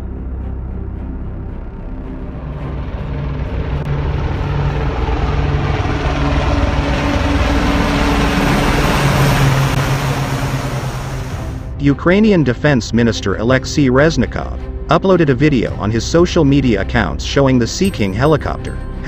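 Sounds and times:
helicopters flying overhead: 0.0 - 11.8.

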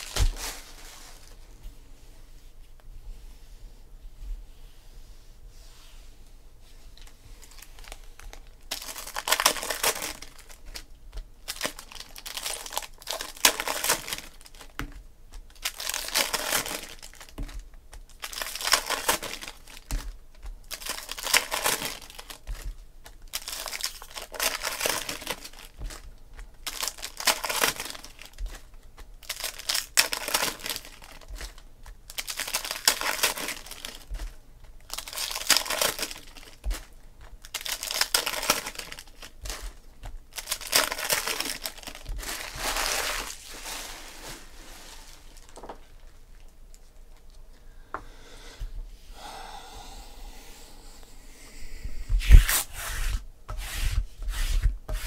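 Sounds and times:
foil wrappers crinkling and tearing: 0.0 - 1.4, 7.0 - 47.3.

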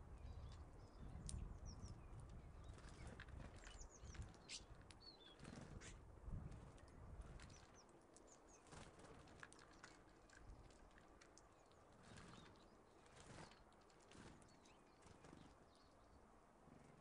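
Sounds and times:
songbirds chirping: 0.0 - 17.0
light taps of birds landing: 1.2 - 1.4, 6.5 - 14.4
bird wings fluttering: 2.6 - 7.8, 8.6 - 11.0, 11.9 - 15.8.

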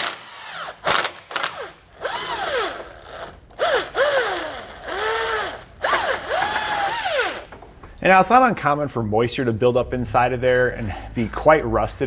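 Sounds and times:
power tool motor whirring: 0.0 - 7.5.

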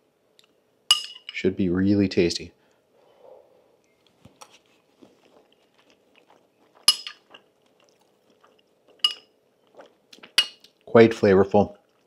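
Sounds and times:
spoon clinking against dish: 0.9 - 1.4, 6.9 - 7.4, 9.0 - 9.3, 10.4 - 10.7
faint eating sounds: 2.5 - 12.0.

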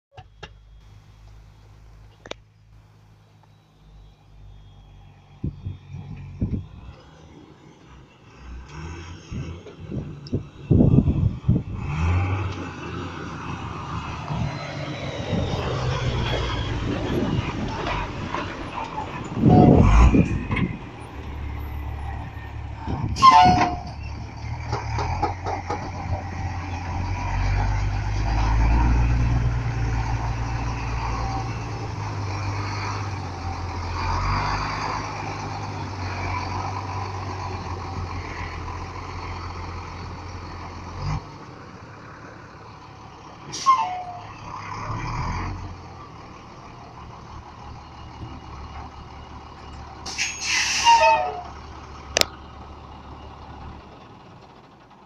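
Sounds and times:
diesel truck engine running: 0.1 - 55.0
air brake hisses: 50.0 - 51.0.

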